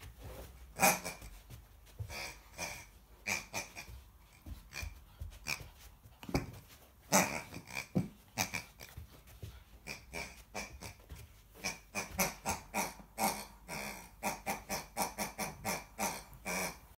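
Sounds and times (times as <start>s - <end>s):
puppy chewing toy: 0.7s - 16.8s.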